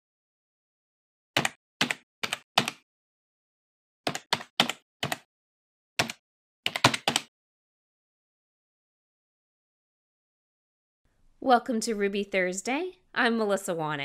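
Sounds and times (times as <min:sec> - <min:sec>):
keyboard keystrokes: 0:01.4 - 0:02.8, 0:04.1 - 0:05.3, 0:06.0 - 0:07.3.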